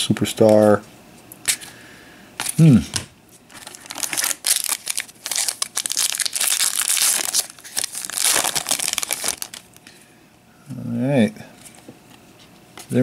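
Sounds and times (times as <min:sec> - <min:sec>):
foil wrapper crinkling and tearing: 0:03.5 - 0:09.9.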